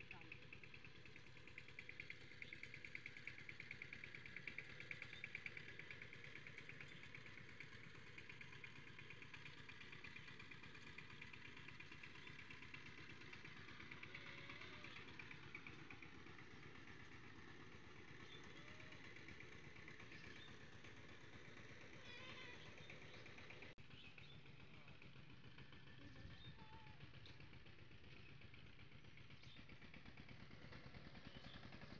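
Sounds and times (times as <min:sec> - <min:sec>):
small engine idling: 0:00.0 - 0:31.9.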